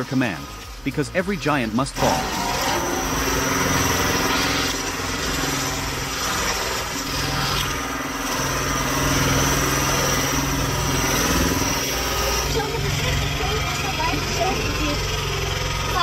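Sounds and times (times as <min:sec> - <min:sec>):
log splitter pushing log: 0:00.0 - 0:16.0
machine engine running: 0:00.0 - 0:16.0.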